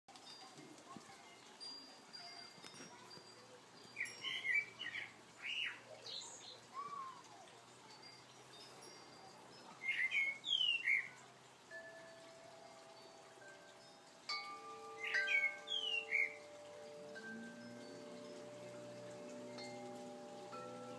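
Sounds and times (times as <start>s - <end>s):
songbird chirping and whistling: 3.8s - 7.4s, 8.2s - 20.9s.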